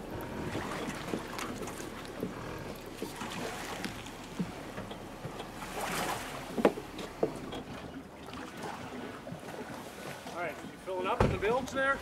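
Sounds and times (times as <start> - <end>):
splashing: 0.0 - 11.9
water lapping against boat hull: 0.0 - 12.0.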